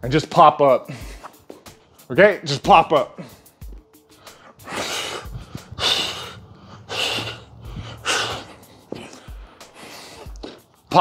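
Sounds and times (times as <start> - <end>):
man exhaling forcefully: 4.3 - 10.6.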